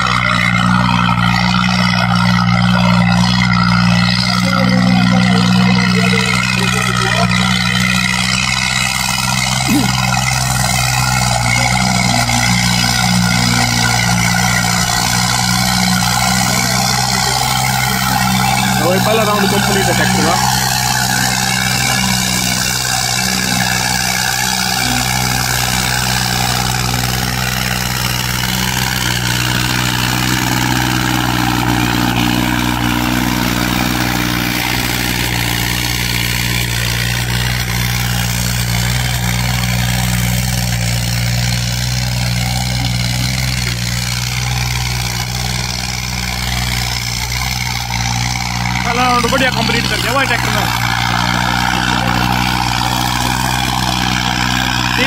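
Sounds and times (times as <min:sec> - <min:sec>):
diesel tractor engine running: 0:00.0 - 0:55.0.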